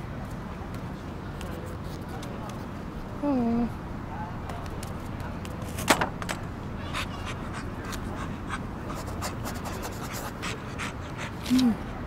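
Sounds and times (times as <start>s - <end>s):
low background hum: 0.0s - 12.0s
dog panting: 6.8s - 12.0s.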